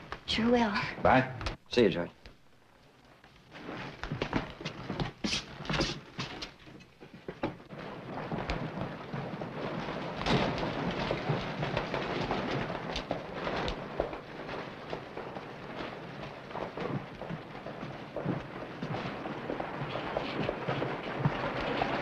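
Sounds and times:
rumbling street noise: 3.1 - 22.0
knocks and clatter: 3.5 - 22.0
boot footsteps on wooden floorboards: 3.8 - 7.8.

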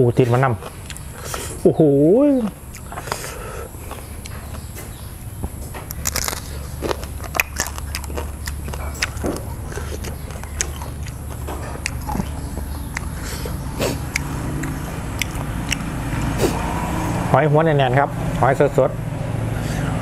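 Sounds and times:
steady low hum: 0.0 - 20.0
person chewing: 0.6 - 1.6, 2.5 - 16.8
crisp clicks and crunches: 5.8 - 13.1.

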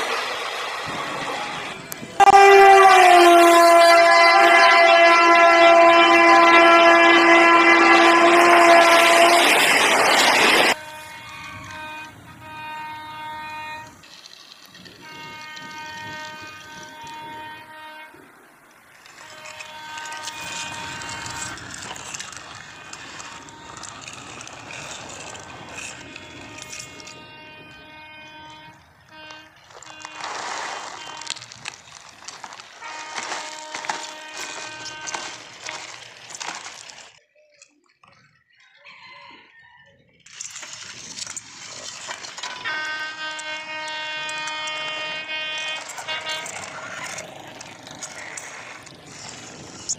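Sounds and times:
steady horn-like tone: 1.2 - 10.0, 10.6 - 14.1, 15.0 - 18.4, 19.0 - 36.7, 42.4 - 47.3
toy truck rattling on hard floor: 19.0 - 27.2, 29.6 - 37.2, 40.3 - 43.5, 45.6 - 49.9
toy train electronic tones: 19.0 - 31.5.

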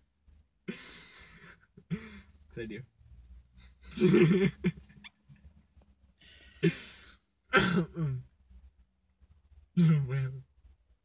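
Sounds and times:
man cough-like burst: 6.6 - 8.3.

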